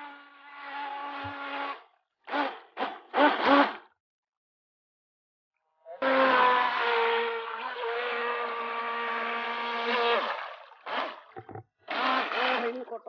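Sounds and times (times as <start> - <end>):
model boat motor whining: 6.0 - 12.9.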